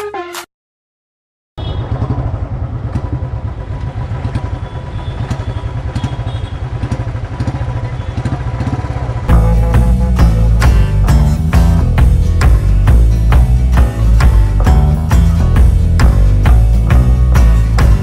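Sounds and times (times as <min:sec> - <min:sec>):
music: 0:00.0 - 0:00.5, 0:09.3 - 0:18.0
motorcycle engine idling: 0:01.6 - 0:18.0.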